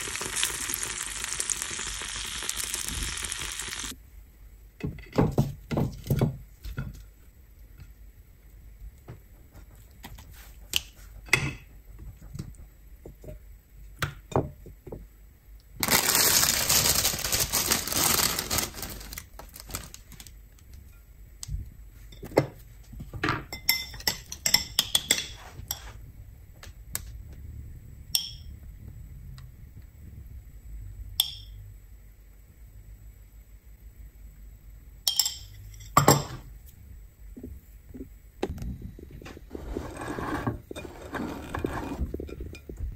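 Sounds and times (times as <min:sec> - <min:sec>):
loud rough hiss: 0:00.0 - 0:03.9
utensils clinking on ceramic bowl: 0:23.4 - 0:26.0, 0:35.1 - 0:36.4.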